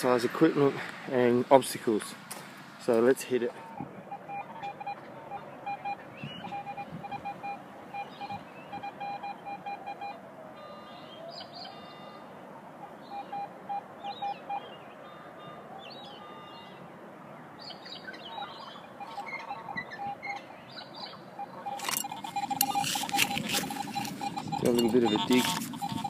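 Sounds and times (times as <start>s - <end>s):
birds chirping: 0.0s - 26.0s
metal detector beeping: 3.6s - 5.0s, 5.6s - 11.0s, 21.4s - 26.0s.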